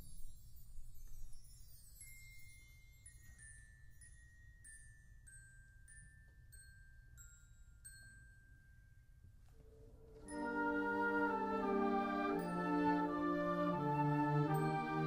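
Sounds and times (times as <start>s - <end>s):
bell-like mallet percussion notes: 10.2s - 15.0s.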